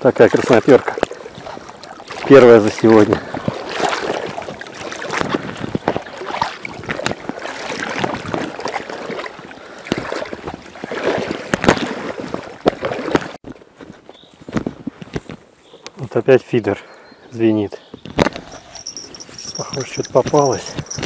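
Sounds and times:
water sloshing and splashing: 0:00.0 - 0:13.4, 0:18.0 - 0:21.0
handling knocks and rustles: 0:11.5 - 0:15.5, 0:18.0 - 0:21.0.

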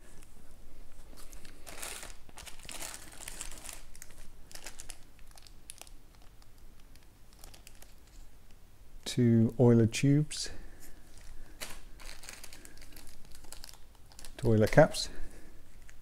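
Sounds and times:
plastic bags crinkling: 0:01.1 - 0:08.3, 0:11.0 - 0:15.0.

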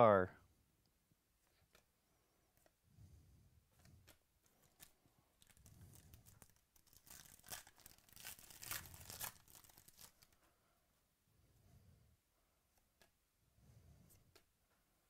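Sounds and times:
plastic wrapper crinkling: 0:04.0 - 0:10.4.

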